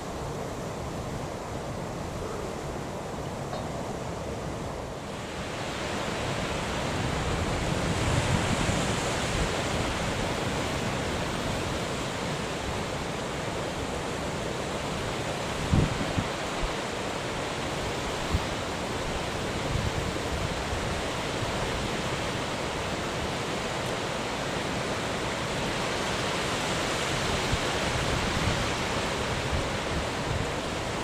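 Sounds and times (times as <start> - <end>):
choppy sea: 0.0 - 31.0
wind buffeting microphone: 6.4 - 12.8, 15.5 - 16.8.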